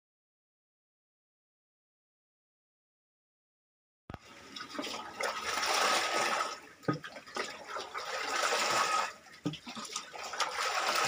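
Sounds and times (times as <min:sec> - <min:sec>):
water poured from plastic bucket: 0:04.2 - 0:11.0
water splashing on flooded floor: 0:04.2 - 0:11.0.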